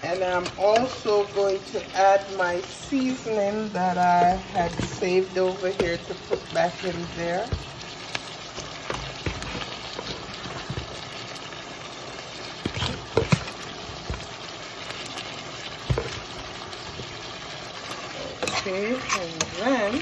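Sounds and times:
stew sizzling in a pot: 0.0s - 20.0s
spoon scraping a pan: 2.7s - 11.0s, 12.6s - 14.3s, 15.0s - 20.0s
spoon knocking on metal pans: 15.8s - 16.3s.

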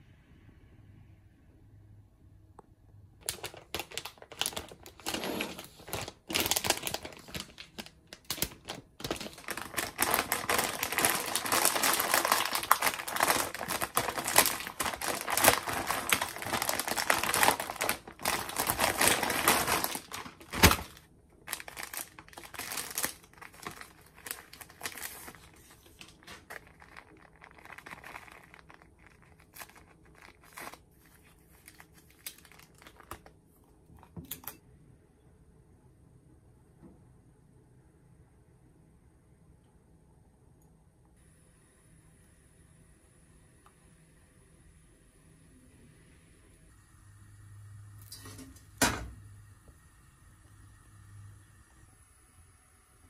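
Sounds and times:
foil bag crinkling and rustling: 3.2s - 33.4s
paper packet rustling: 3.2s - 33.4s.

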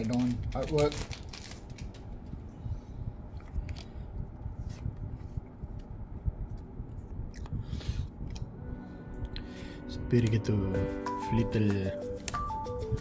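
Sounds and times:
foil wrapper and cards crinkling: 0.0s - 2.2s
low background rumble: 0.0s - 10.8s.

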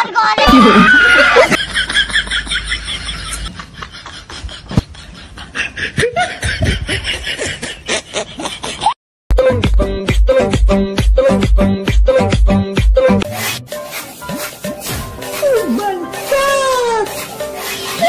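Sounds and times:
music: 9.3s - 18.0s.

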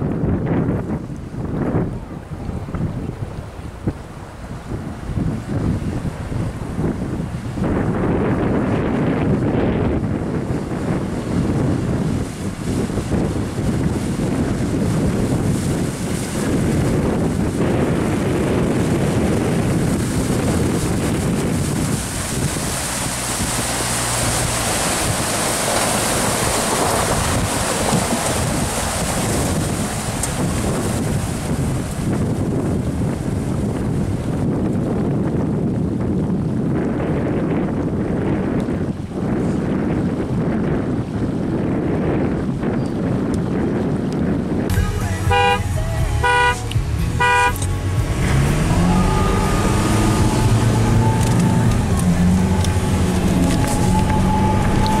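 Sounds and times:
diesel pickup engine rumble: 0.0s - 55.0s
water splashing around wheels: 0.0s - 55.0s
wind buffeting microphone: 0.0s - 55.0s
car horn honking: 45.1s - 47.7s.

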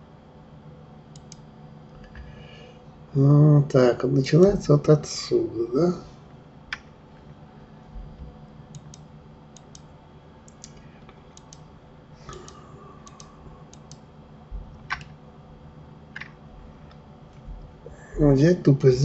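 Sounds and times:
faint steady low hum: 0.0s - 19.0s
computer mouse clicks: 1.1s - 1.4s, 8.7s - 9.9s, 10.5s - 11.7s, 12.3s - 14.0s, 14.8s - 15.2s, 16.2s - 17.0s
keyboard clicks: 1.1s - 1.4s, 8.7s - 9.9s, 10.5s - 11.6s, 12.3s - 14.0s, 14.8s - 15.2s, 16.2s - 17.0s.

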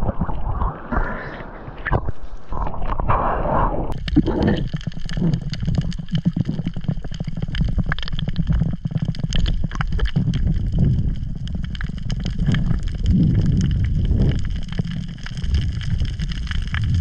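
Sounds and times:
underwater rumble of moving water: 0.0s - 17.0s
sharp crackling clicks: 3.9s - 17.0s.

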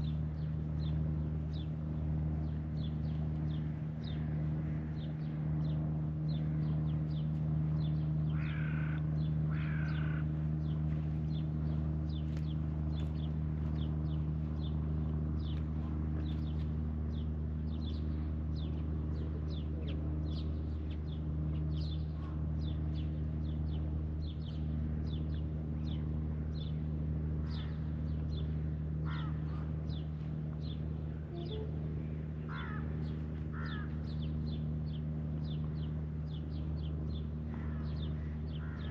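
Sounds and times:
low mechanical hum: 0.0s - 38.9s
birds cawing: 8.2s - 10.8s, 29.0s - 29.9s, 32.4s - 34.3s, 37.5s - 38.9s.

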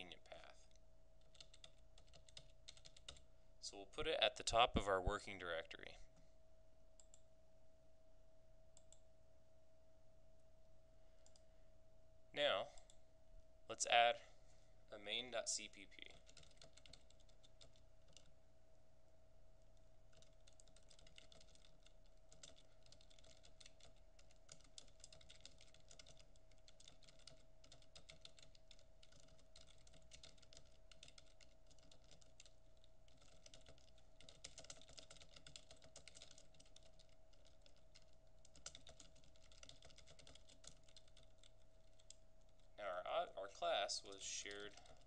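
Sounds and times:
typing on computer keyboard: 1.2s - 3.3s, 16.0s - 18.3s, 20.1s - 42.7s, 44.1s - 45.0s.

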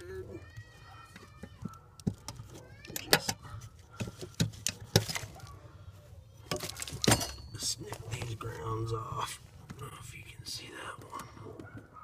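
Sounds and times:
plastic connectors being handled: 0.7s - 5.6s, 6.4s - 8.3s.

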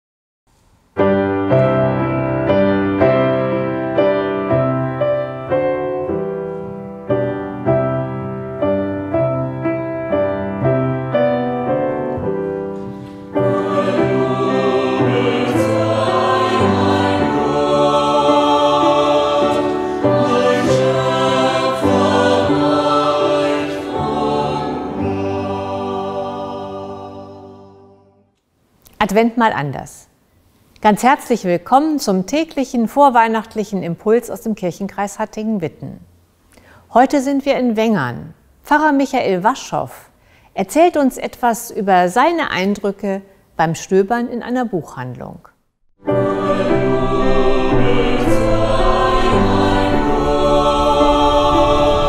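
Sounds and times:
grand piano playing: 1.0s - 28.1s, 46.0s - 52.0s
mixed choir singing: 12.8s - 28.2s, 46.0s - 52.0s.

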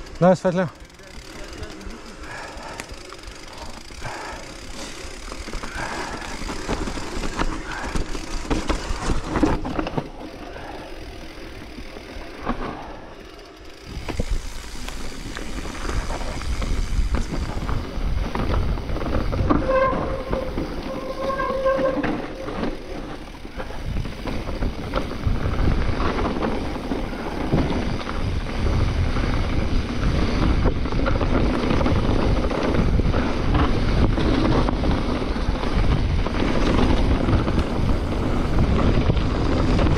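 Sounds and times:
bike rattling over ground: 0.0s - 39.9s
wind buffeting microphone: 13.8s - 22.5s, 23.2s - 39.9s.

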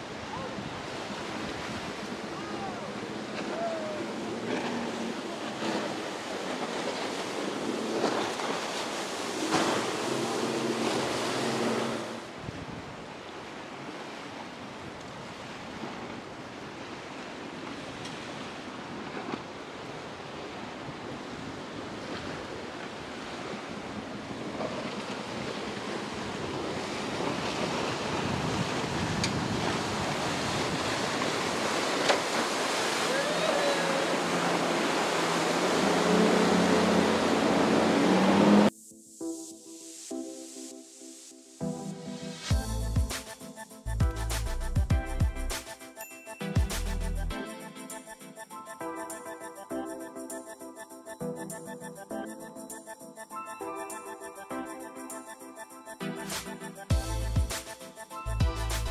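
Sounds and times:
ocean waves breaking: 0.0s - 44.6s, 45.5s - 58.9s
boat engine humming: 2.0s - 12.3s, 30.2s - 38.7s
wind buffeting microphone: 23.8s - 31.8s.

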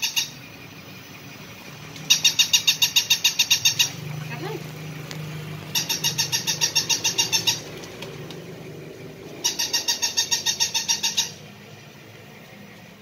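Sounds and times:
toy puppy electronic yips: 0.0s - 0.4s, 2.1s - 4.0s, 5.7s - 7.7s, 9.4s - 11.4s.

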